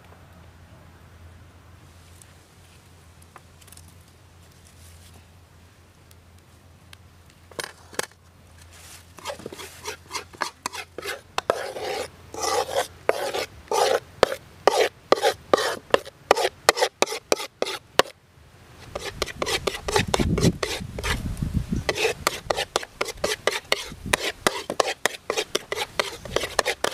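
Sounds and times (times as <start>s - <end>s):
metal spatula scraping a wok: 9.2s - 18.1s, 18.8s - 21.2s, 21.8s - 26.9s.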